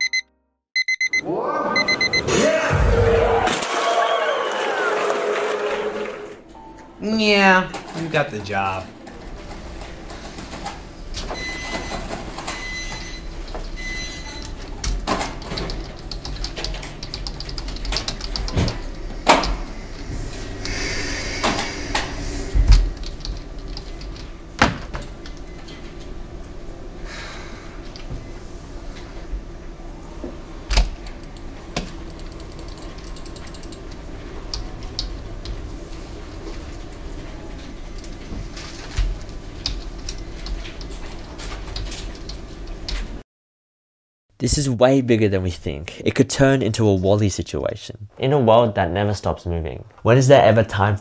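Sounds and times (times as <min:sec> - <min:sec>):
short high electronic tones: 0:00.0 - 0:01.2, 0:01.8 - 0:02.3
low room hum: 0:01.3 - 0:43.2
computer keyboard typing: 0:14.3 - 0:19.6, 0:22.7 - 0:24.3, 0:31.1 - 0:35.1.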